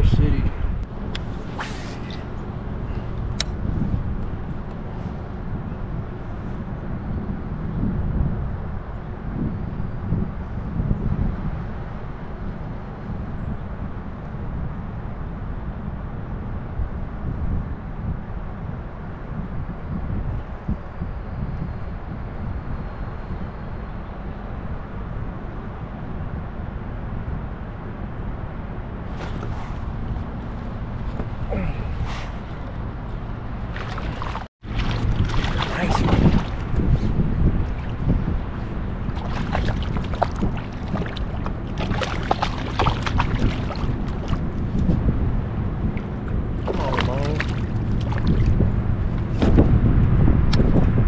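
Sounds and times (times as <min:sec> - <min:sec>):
wind buffeting microphone: 0:00.0 - 0:51.0
water moving around kayak: 0:29.0 - 0:49.8
fish splashing: 0:33.6 - 0:36.8, 0:39.0 - 0:44.5, 0:46.6 - 0:48.6.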